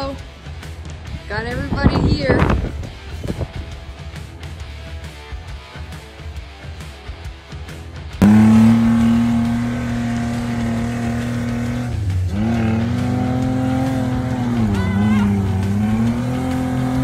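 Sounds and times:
engine at high revs: 8.2s - 17.0s.

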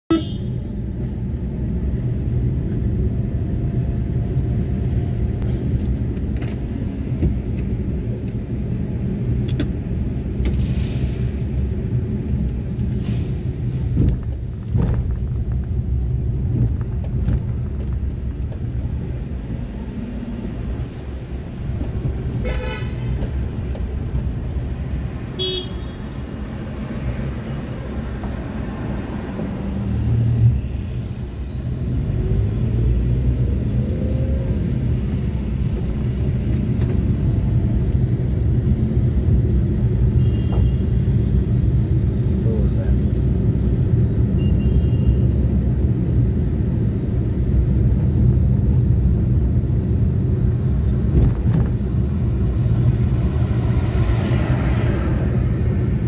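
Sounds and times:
vehicle horn honking: 0.1s - 0.5s, 22.4s - 23.1s, 25.4s - 26.0s
car engine and road noise: 0.1s - 56.0s.

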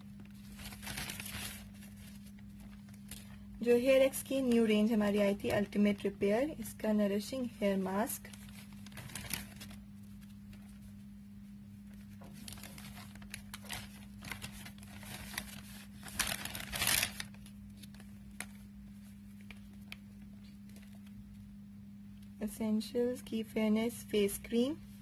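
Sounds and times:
packaging rustling and crinkling: 0.2s - 3.4s, 8.2s - 10.9s, 12.0s - 21.2s.

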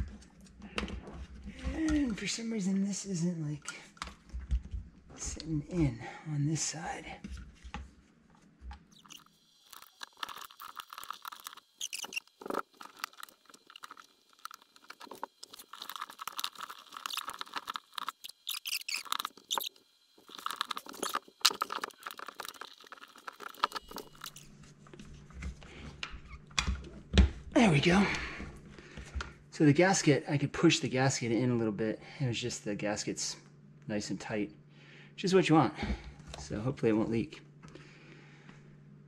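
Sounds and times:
plastic and rubber creaking: 9.8s - 24.6s.

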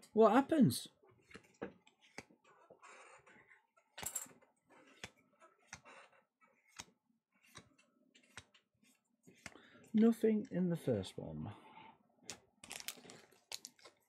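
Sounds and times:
trading cards clicking and sliding: 1.2s - 9.9s
brush of cards: 6.6s - 9.6s.

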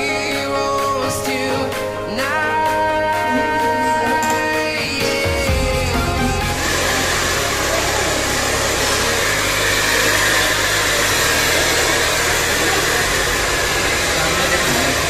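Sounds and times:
hair dryer blowing: 5.4s - 15.0s.

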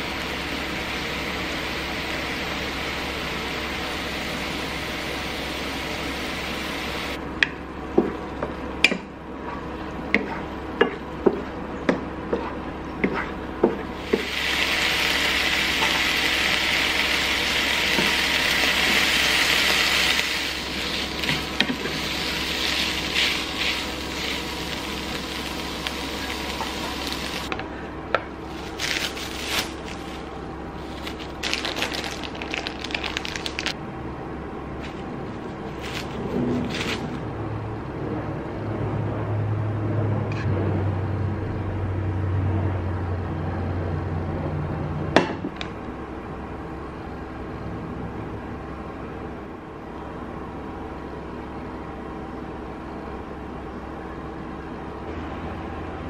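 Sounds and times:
meat sizzling in a pan: 14.0s - 27.5s
plastic wrap crinkling: 28.4s - 33.8s, 34.8s - 37.2s.

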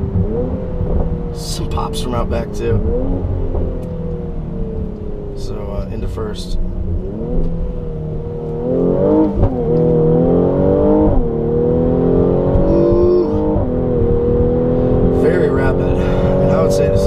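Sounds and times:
car engine accelerating hard: 0.0s - 17.0s.

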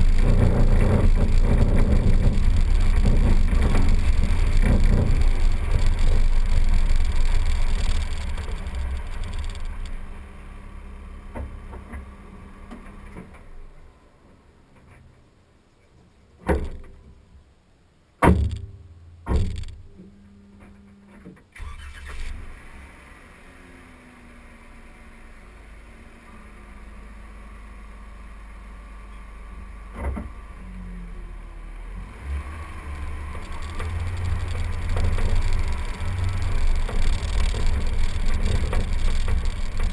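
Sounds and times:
car driving on gravel rumble: 0.0s - 14.9s, 18.2s - 39.9s
sharp knocks: 18.2s - 19.9s.

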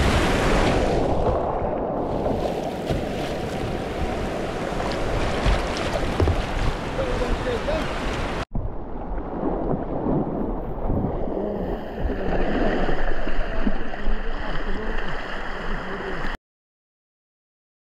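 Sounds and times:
muffled river water rushing: 0.0s - 16.4s.

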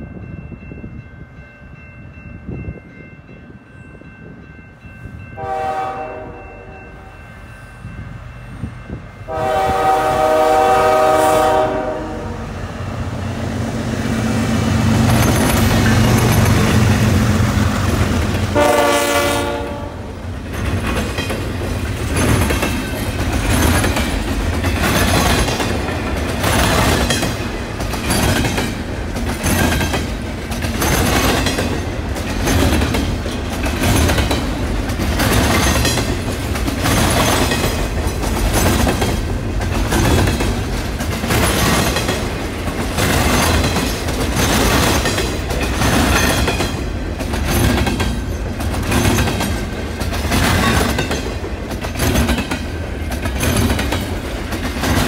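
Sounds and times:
locomotive air horn blasts: 5.4s - 7.1s, 9.3s - 12.5s, 18.5s - 20.2s
train wheels clickety-clack: 13.1s - 55.0s.

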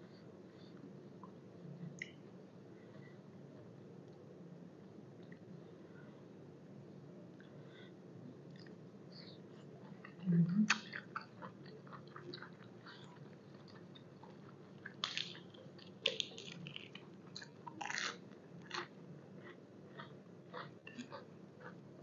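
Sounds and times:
close chewing and crunching: 9.8s - 21.9s.

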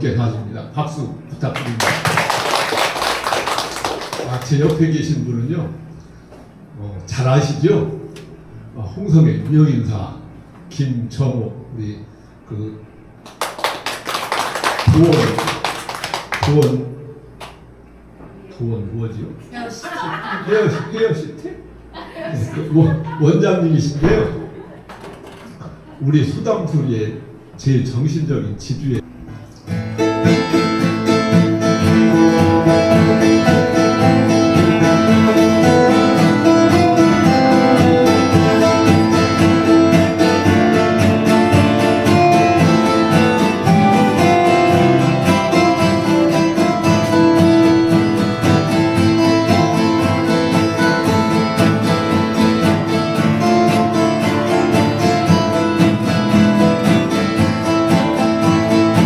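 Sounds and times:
acoustic guitars strumming: 12.9s - 18.2s, 29.0s - 59.0s.

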